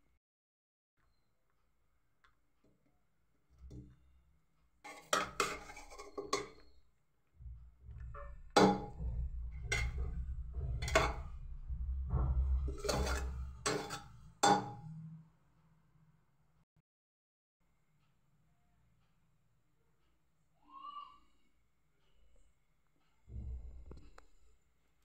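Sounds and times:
metal spoon clinking on pot: 4.9 - 6.8, 12.8 - 14.8
low rumble: 7.4 - 14.4, 23.3 - 24.4.

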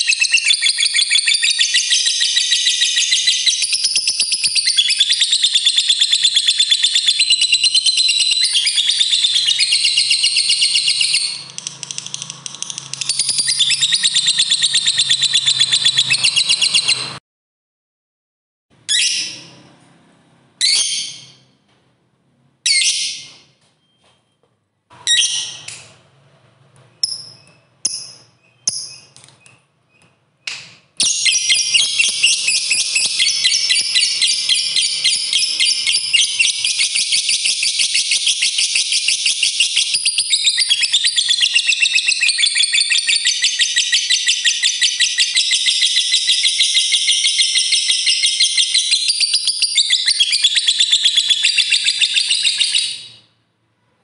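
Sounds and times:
lovebird rapid chattering trill: 0.0 - 17.1, 31.2 - 44.0
lovebird shrill chirps: 0.0 - 17.2, 31.0 - 53.3.

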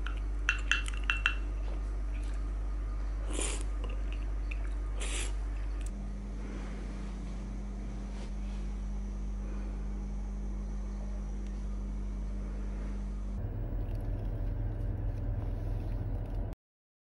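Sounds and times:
steady low hum: 0.0 - 16.6
low uneven rumble in car cabin: 12.3 - 16.6.

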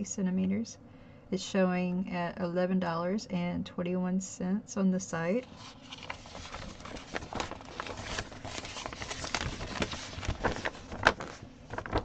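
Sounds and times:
paper chart crackling and rustling: 5.4 - 12.0.

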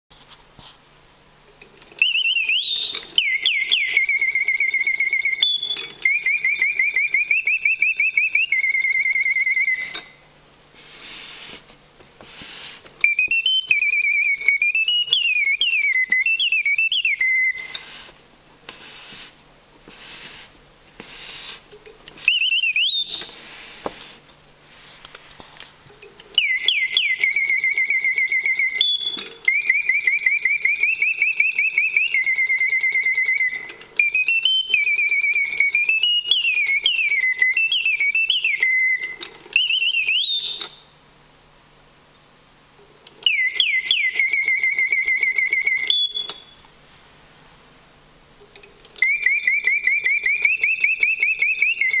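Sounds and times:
mechanical bird whistling trills: 1.9 - 10.3, 12.4 - 18.1, 19.9 - 23.8, 26.3 - 41.0, 43.2 - 46.7, 48.4 - 52.0.

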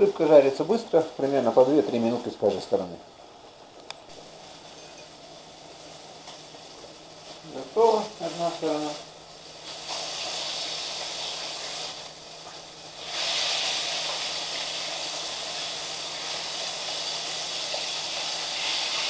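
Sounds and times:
fish fillets sizzling in oil: 4.1 - 19.0.

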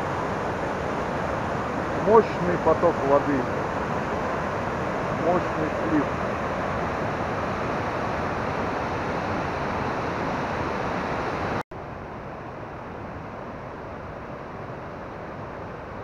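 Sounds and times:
mountain stream rushing: 0.0 - 16.0.

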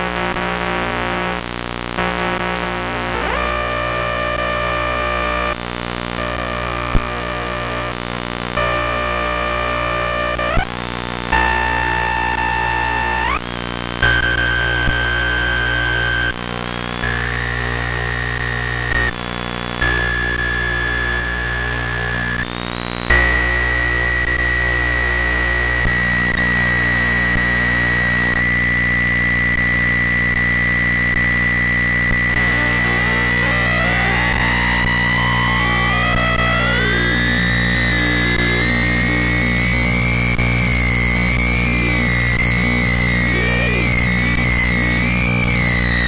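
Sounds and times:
harsh electronic noise drone: 0.0 - 46.0
gliding electronic tones: 32.3 - 46.0
low hum: 32.3 - 46.0.

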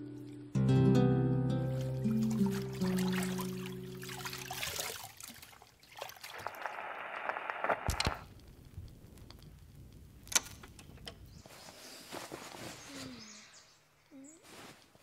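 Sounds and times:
water splashing in a tub: 1.7 - 6.9
vinyl record crackle: 6.3 - 12.9.

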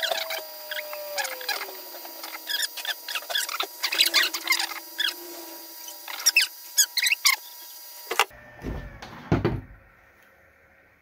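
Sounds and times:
squeaky electronic chirps: 0.0 - 7.5.

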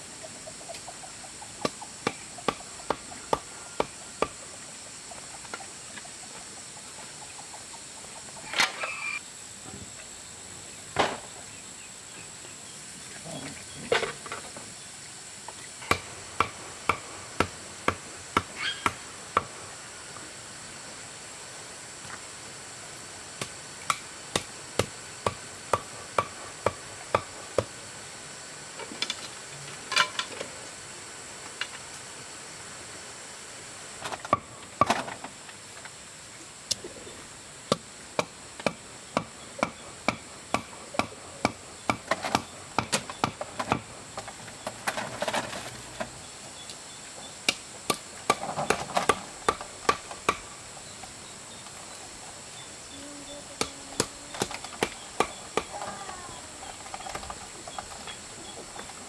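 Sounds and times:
high insect drone: 0.0 - 59.0
hand tool striking wood: 1.6 - 4.4, 15.8 - 19.6, 23.4 - 27.7, 37.7 - 43.9, 47.5 - 50.5, 53.6 - 55.8.

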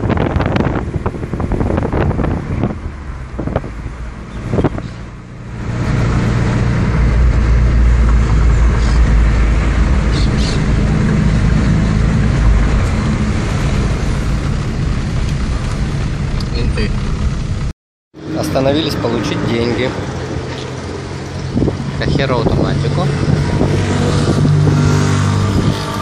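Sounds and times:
car engine and tyres rumbling: 0.0 - 26.0.

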